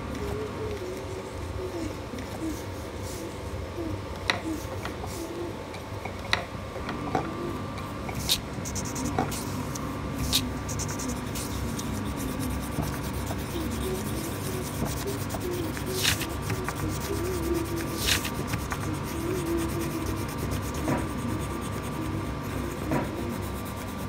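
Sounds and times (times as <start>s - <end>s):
pencil scratching on paper: 8.1s - 24.0s.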